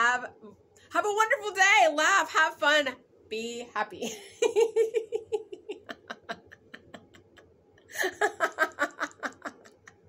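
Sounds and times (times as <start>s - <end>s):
woman laughing: 4.0s - 10.0s.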